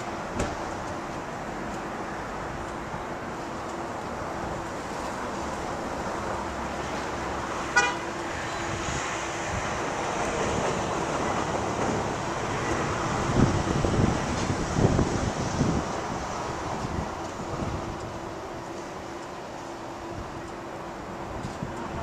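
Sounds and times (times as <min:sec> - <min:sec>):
street traffic: 0:00.0 - 0:22.0
car horn toot: 0:07.7 - 0:08.7
wind buffeting microphone: 0:08.3 - 0:19.2, 0:21.1 - 0:22.0.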